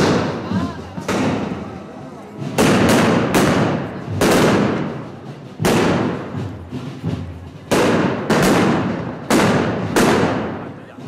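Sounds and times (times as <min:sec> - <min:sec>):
firecracker bangs echoing: 0:00.0 - 0:11.0.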